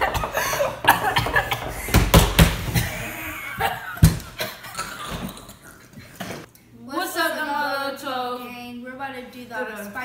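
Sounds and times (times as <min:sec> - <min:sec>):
children coughing and gasping: 0:00.0 - 0:06.5.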